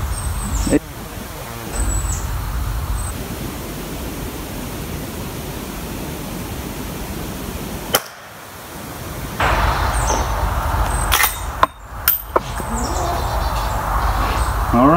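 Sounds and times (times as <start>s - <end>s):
steady background rush: 0.0s - 14.9s
rifle shot crack: 7.9s - 8.4s, 9.4s - 12.5s.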